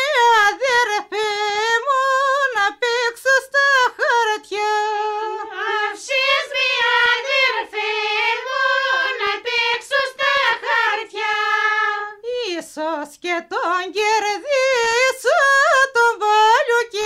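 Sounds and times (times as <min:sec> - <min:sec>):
person singing folk melody: 0:00.0 - 0:07.6, 0:10.2 - 0:17.0.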